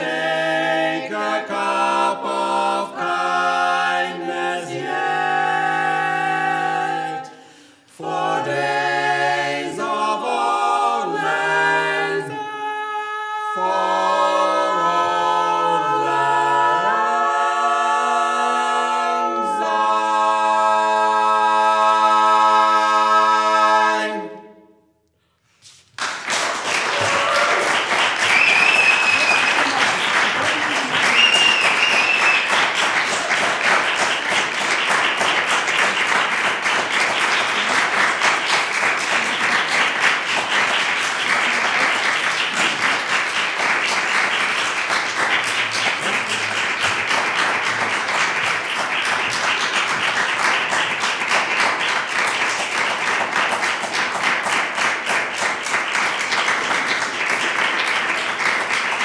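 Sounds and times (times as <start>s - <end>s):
a cappella quartet singing chord: 0.0s - 25.0s
audience applauding: 25.6s - 59.0s.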